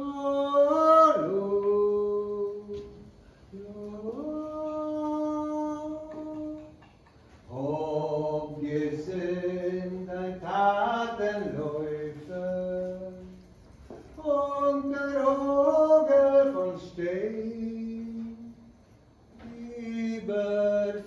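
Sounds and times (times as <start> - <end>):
man singing unaccompanied: 0.0 - 6.9, 7.5 - 13.5, 14.1 - 18.7, 19.3 - 21.0
breaths: 3.2 - 3.5.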